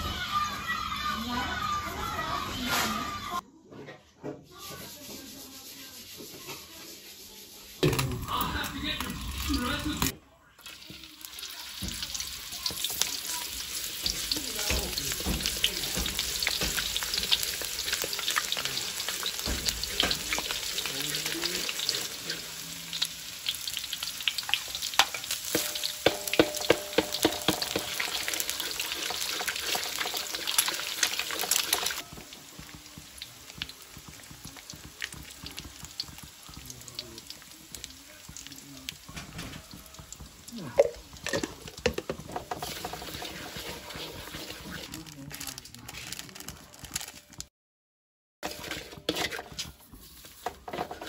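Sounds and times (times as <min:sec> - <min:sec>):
shallots sizzling in hot oil: 0:05.6 - 0:45.7, 0:48.4 - 0:51.0
wooden spatula stirring: 0:10.7 - 0:22.7, 0:23.8 - 0:46.2, 0:48.4 - 0:51.0.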